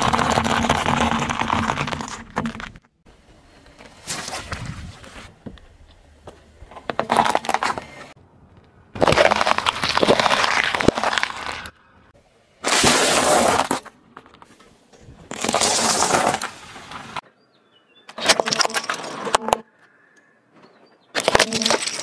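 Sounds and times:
car tyre crushing objects: 0.0s - 3.0s, 6.2s - 8.1s, 8.9s - 11.8s, 12.6s - 14.5s, 15.3s - 17.2s, 21.1s - 22.0s
candy crunching: 9.0s - 11.7s.

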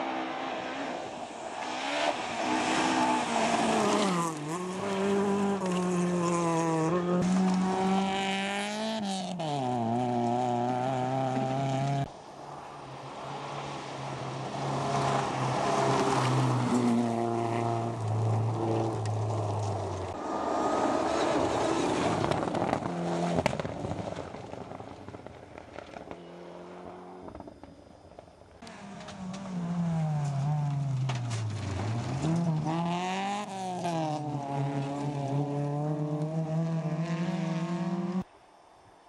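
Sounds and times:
rally car engines revving: 0.0s - 24.6s, 28.6s - 38.3s.

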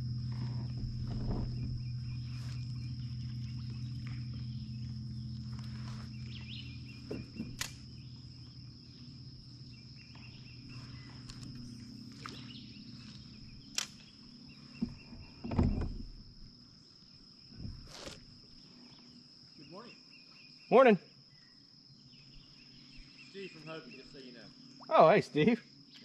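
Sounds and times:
dull thump: 0.0s - 3.4s, 6.2s - 8.0s, 14.8s - 16.4s
low hum: 0.0s - 19.0s
high-pitched insect buzz: 0.0s - 20.7s
sharp clicks: 7.6s - 7.8s, 13.7s - 14.1s.

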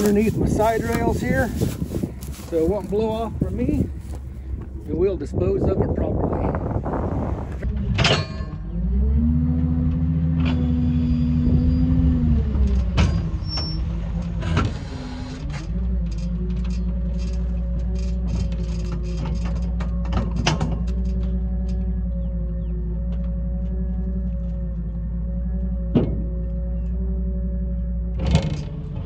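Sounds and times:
pickup truck engine: 6.2s - 29.0s.

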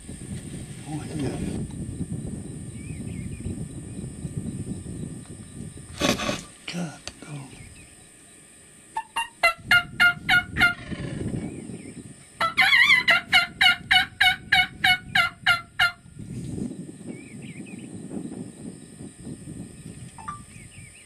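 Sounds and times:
wild turkey calling: 8.9s - 11.4s, 12.4s - 16.0s.

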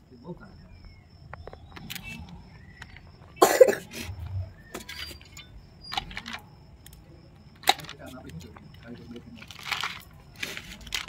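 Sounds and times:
person coughing: 3.4s - 4.0s.

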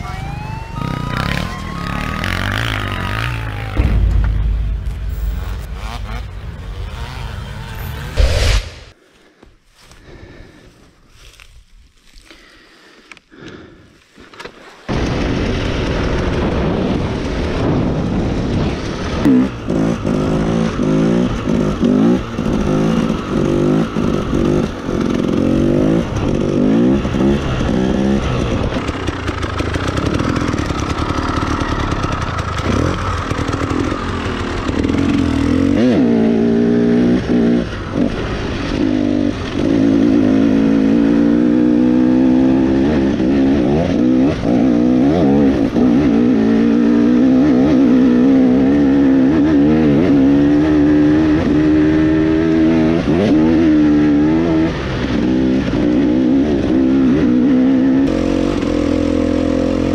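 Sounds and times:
dirt bike engine revving: 0.8s - 4.0s, 5.1s - 8.2s, 19.2s - 59.9s.

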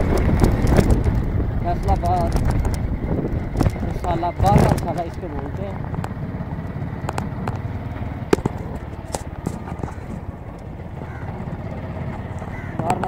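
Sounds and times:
sharp clicks and knocks: 0.0s - 1.3s, 1.9s - 7.6s, 8.2s - 10.7s
low rumble of travel: 0.0s - 13.0s
wind buffeting microphone: 0.0s - 13.0s.

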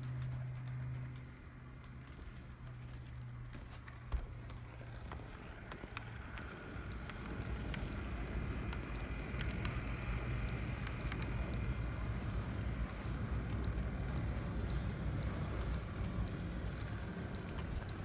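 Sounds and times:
wheels clicking on rails: 0.0s - 18.0s
model train motor hum: 4.0s - 18.0s.

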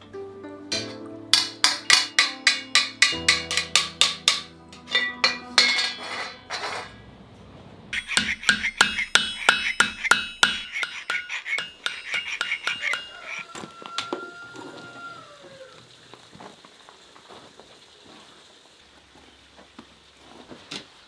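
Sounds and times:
hammer striking copper: 0.7s - 7.0s, 8.0s - 13.5s
file scraping copper ring: 8.0s - 13.5s.

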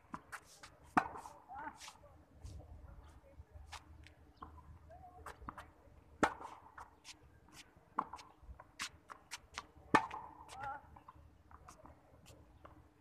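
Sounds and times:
racket hitting tennis balls: 0.1s - 2.0s, 6.2s - 6.9s, 8.0s - 10.8s.

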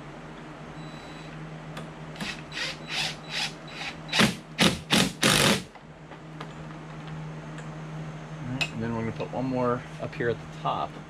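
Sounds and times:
impact driver bursts: 2.2s - 5.7s.

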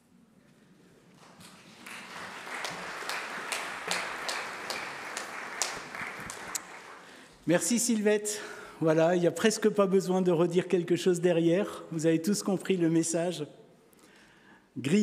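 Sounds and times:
congregation applauding: 1.2s - 7.5s.

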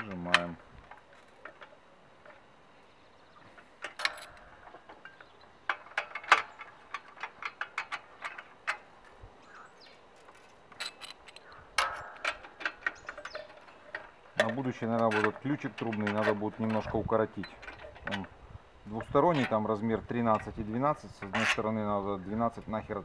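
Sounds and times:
metal clicks and clinks: 3.8s - 8.8s, 10.7s - 18.3s.

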